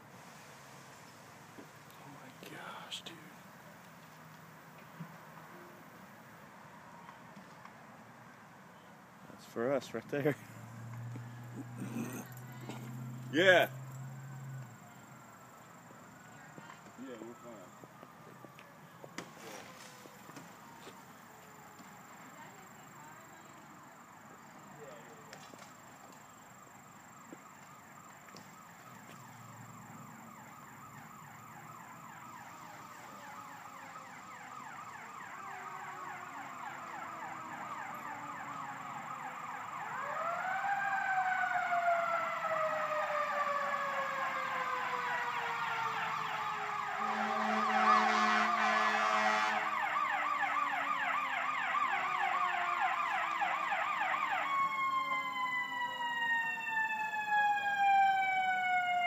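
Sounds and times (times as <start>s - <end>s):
siren slow wail: 10.6s - 59.0s
vehicle horn blast: 47.0s - 49.7s.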